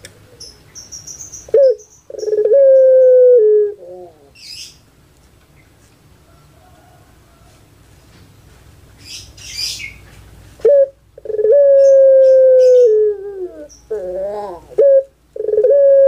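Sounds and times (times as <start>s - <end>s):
dove cooing: 1.5s - 4.4s, 10.6s - 16.0s.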